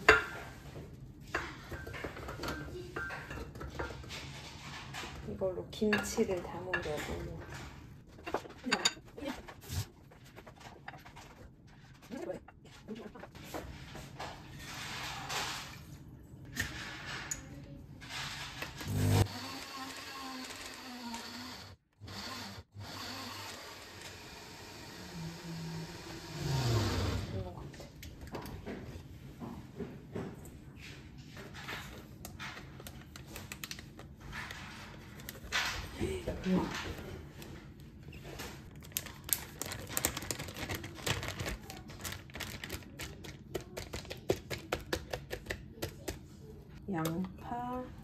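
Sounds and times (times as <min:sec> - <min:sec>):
blender grinding: 0:18.6 - 0:27.4
plastic bag crinkling: 0:38.7 - 0:44.3.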